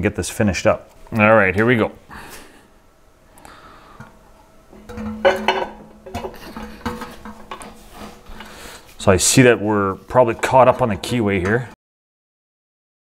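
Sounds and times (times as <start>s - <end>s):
metal clinks and scrapes: 4.8s - 9.1s.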